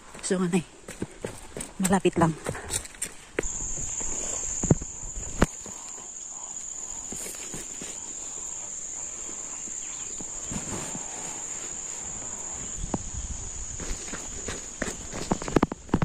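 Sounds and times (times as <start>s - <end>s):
footsteps on gravel path: 0.0s - 6.1s, 6.8s - 16.0s
high-pitched insect drone: 3.4s - 15.8s.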